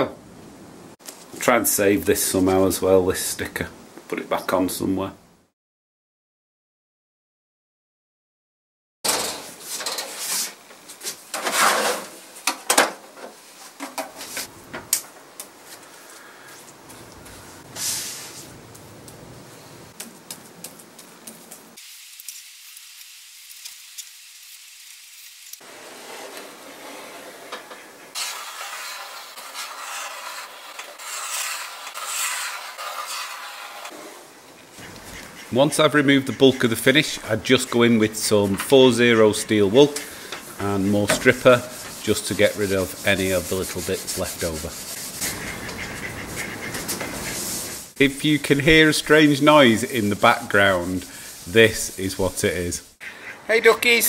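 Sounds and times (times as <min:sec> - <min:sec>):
metal cabinet opening: 0:09.1 - 0:10.2
scraper scraping off finish: 0:25.7 - 0:35.5, 0:40.0 - 0:52.7
brush scrubbing wood: 0:25.7 - 0:53.0.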